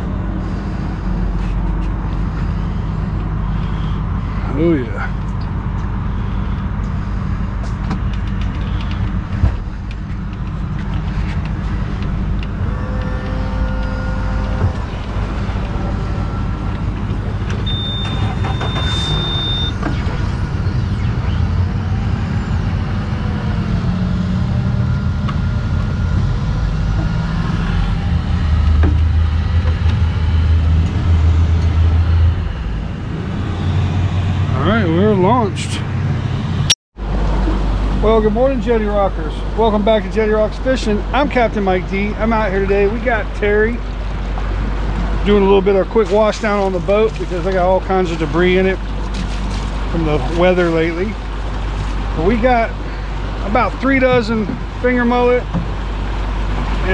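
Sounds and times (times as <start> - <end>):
outboard motor droning: 0.0 - 56.9
short high beep: 17.6 - 19.8.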